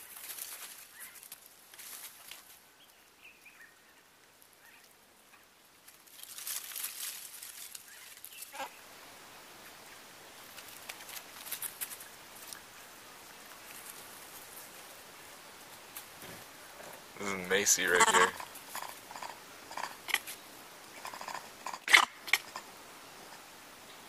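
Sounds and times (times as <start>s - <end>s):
faint crackling rustles: 0.0s - 24.0s
falling animal call: 17.8s - 19.9s.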